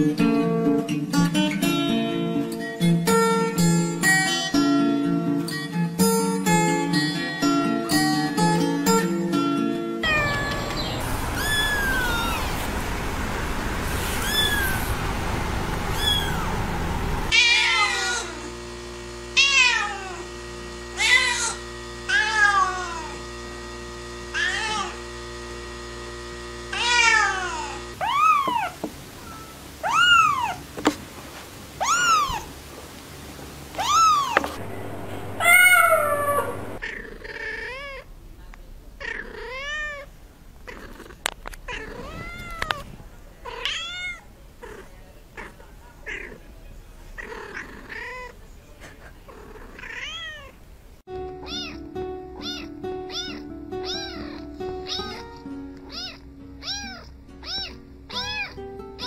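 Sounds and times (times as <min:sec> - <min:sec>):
cats meowing: 0:10.0 - 0:12.7, 0:14.1 - 0:14.9, 0:15.9 - 0:16.6, 0:17.3 - 0:18.4, 0:19.4 - 0:20.2, 0:21.0 - 0:23.1, 0:24.4 - 0:25.0, 0:26.7 - 0:30.6, 0:31.8 - 0:32.5, 0:33.8 - 0:38.0, 0:39.0 - 0:46.4, 0:47.2 - 0:48.4, 0:49.3 - 0:50.6, 0:51.4 - 0:58.6.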